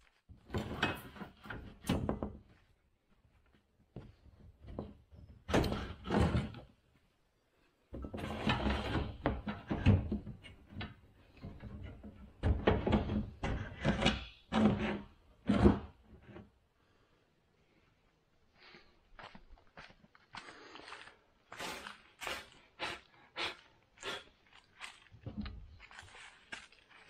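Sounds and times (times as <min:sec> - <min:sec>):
knocks thumps and scraping: 0:07.9 - 0:16.6.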